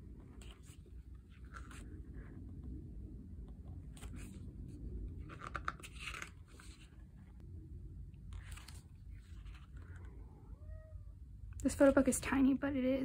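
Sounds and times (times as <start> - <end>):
book pages turning: 0.3 - 2.0, 3.8 - 7.4, 8.3 - 10.1.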